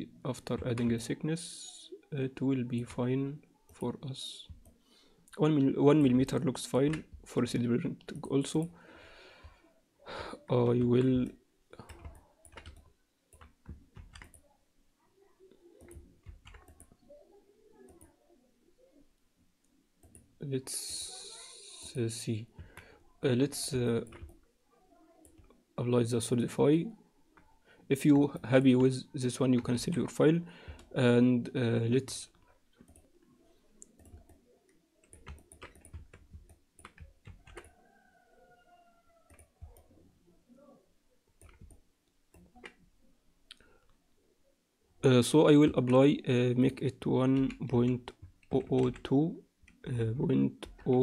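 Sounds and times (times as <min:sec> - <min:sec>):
keyboard clicks: 0:10.6 - 0:14.5, 0:15.8 - 0:17.0, 0:24.0 - 0:24.4, 0:32.8 - 0:33.1, 0:33.8 - 0:34.4, 0:35.0 - 0:37.7, 0:39.3 - 0:40.0, 0:41.4 - 0:42.8, 0:47.4 - 0:49.9
mouse clicks: 0:41.4 - 0:42.8.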